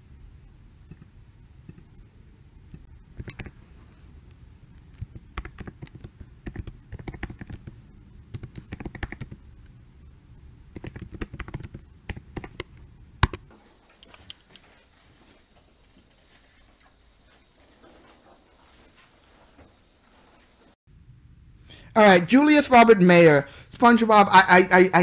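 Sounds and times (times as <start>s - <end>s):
typing on computer keyboard: 5.0s - 9.4s, 10.8s - 13.4s.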